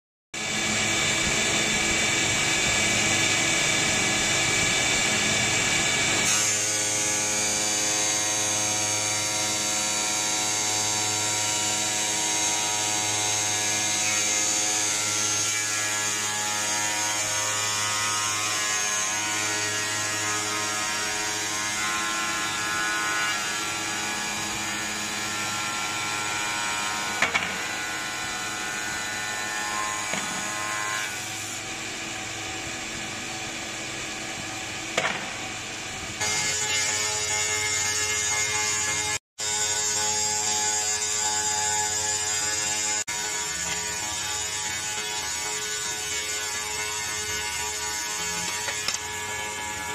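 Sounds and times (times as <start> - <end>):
tile cutting machine whining: 0.4 - 49.9.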